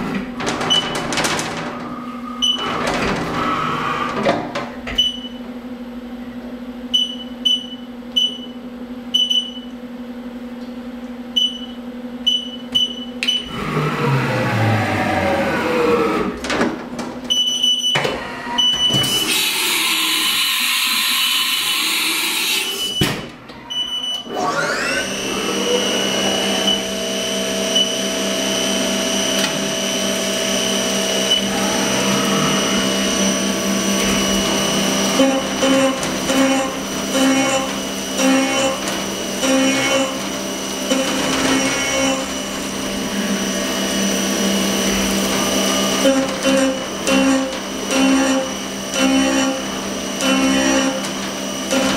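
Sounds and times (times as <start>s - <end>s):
spindle whine: 22.7s - 36.8s
machine tool change gliding pitches: 23.6s - 38.8s.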